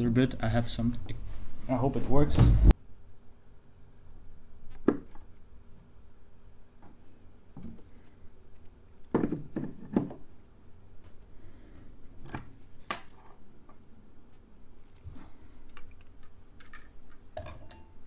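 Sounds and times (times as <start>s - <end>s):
faint steady hum: 0.0s - 18.0s
tools knocking on wooden bench: 9.1s - 10.2s.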